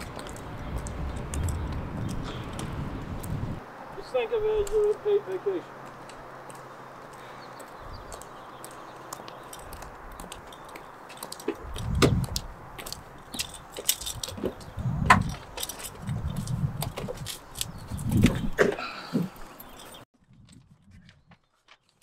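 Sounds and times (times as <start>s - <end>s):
car keys jingling: 12.8s - 14.6s, 15.2s - 18.2s.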